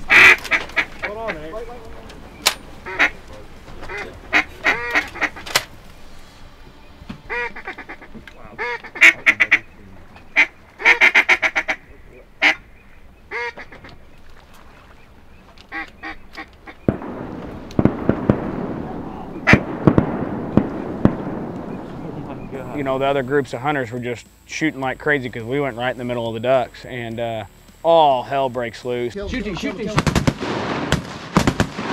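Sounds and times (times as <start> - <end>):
duck call quacks: 0.1 - 1.6, 2.8 - 3.2, 3.8 - 5.6, 7.3 - 12.7, 13.3 - 13.9, 15.7 - 16.9, 19.1 - 19.7.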